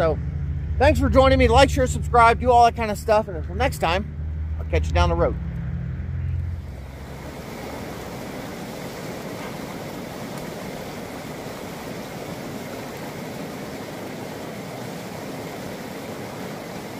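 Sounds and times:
stream flowing over rocks: 0:06.6 - 0:16.9.

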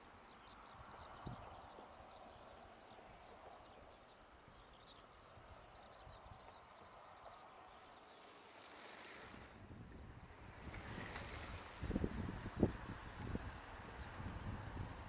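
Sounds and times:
bicycle rolling past: 0:05.8 - 0:15.0.

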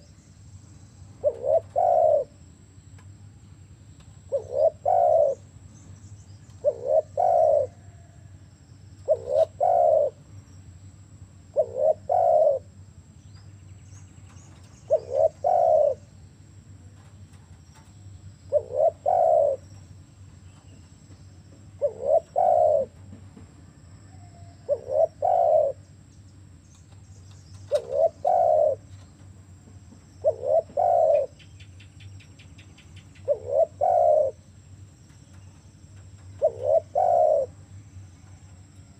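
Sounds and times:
dove cooing: 0:01.2 - 0:02.5, 0:04.2 - 0:05.7, 0:06.4 - 0:10.3, 0:11.4 - 0:12.8, 0:14.4 - 0:16.2, 0:16.9 - 0:20.9, 0:21.6 - 0:23.2, 0:24.0 - 0:26.0, 0:27.4 - 0:29.3, 0:29.9 - 0:31.6, 0:33.0 - 0:34.6, 0:35.3 - 0:38.9.

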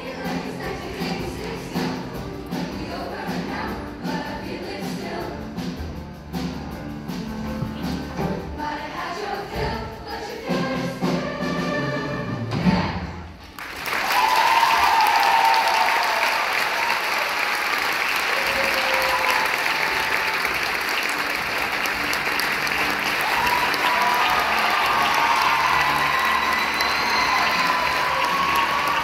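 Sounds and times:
choir singing: 0:00.0 - 0:05.8, 0:08.2 - 0:13.3
audience applause and cheering: 0:13.4 - 0:29.0.

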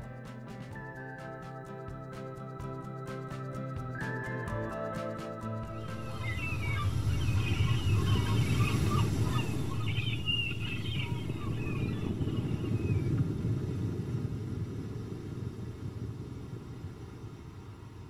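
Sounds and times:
steady low rumble: 0:05.6 - 0:18.0
birds calling: 0:05.7 - 0:13.2.

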